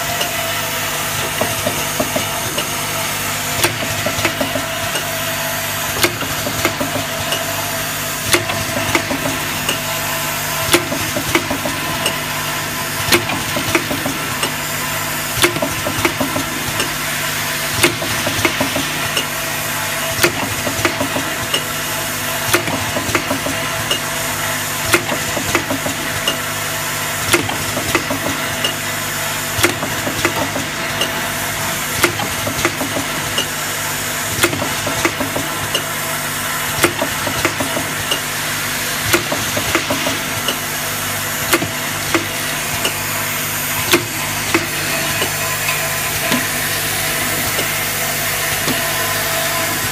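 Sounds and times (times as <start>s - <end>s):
machine hum and hiss: 0.0s - 49.9s
machine clacking: 36.6s - 40.8s.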